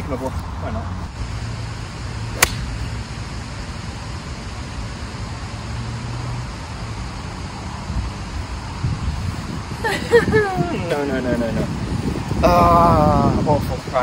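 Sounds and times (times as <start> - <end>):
golf club striking ball: 2.4 - 2.8.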